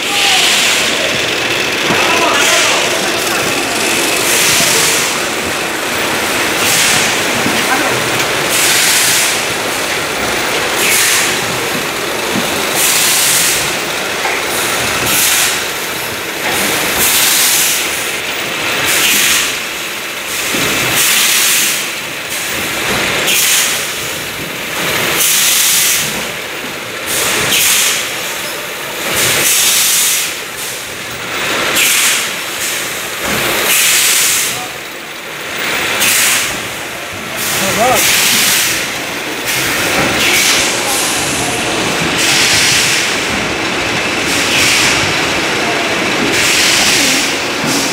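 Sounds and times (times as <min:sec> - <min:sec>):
packaging machinery running: 0:00.0 - 0:47.9
machine hiss bursts: 0:00.1 - 0:18.0, 0:29.1 - 0:34.6.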